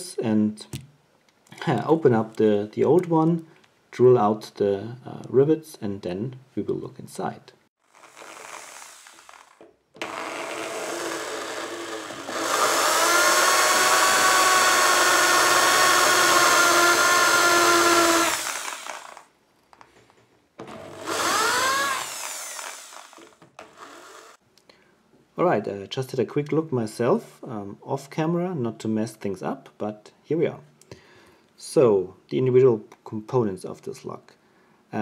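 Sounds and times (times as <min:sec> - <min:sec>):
electric drill boring metal: 0:07.8 - 0:19.2, 0:20.6 - 0:24.4.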